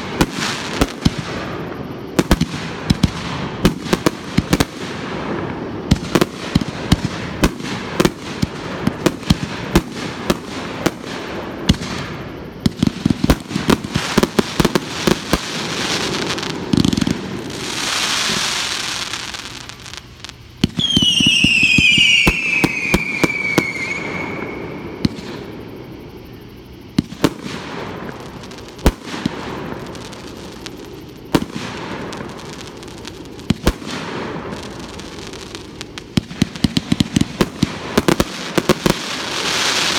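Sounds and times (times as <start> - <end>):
fireworks crackling and banging: 0.0 - 25.5, 27.0 - 39.9
falling firework whistle: 0.0 - 25.7.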